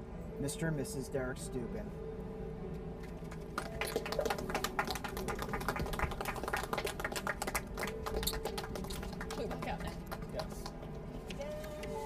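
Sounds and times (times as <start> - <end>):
crowd applauding: 3.4 - 10.7.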